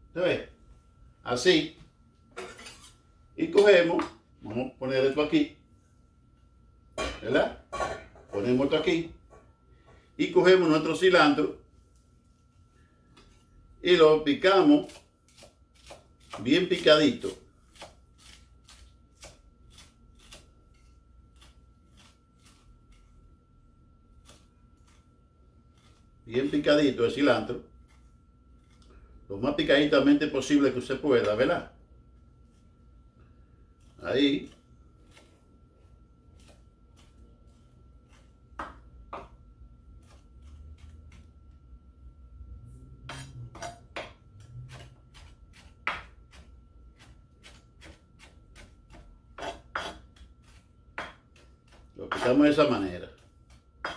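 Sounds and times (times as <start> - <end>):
knife chopping on wooden board: 17.7 - 20.5, 38.1 - 39.4, 43.1 - 52.4.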